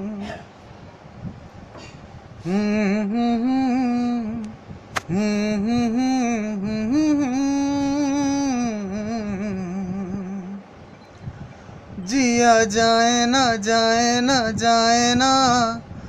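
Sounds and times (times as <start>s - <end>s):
man humming a slow melody: 0.0s - 0.5s, 2.4s - 10.7s
sharp click: 4.4s - 5.1s.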